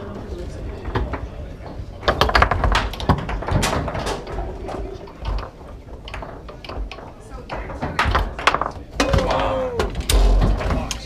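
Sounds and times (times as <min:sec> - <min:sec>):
foosball clacks: 0:00.8 - 0:11.0.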